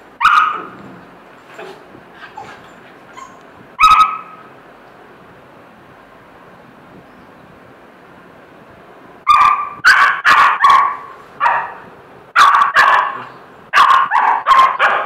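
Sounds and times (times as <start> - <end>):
puppy barking: 0.2 - 0.8, 1.6 - 4.5, 9.3 - 15.0.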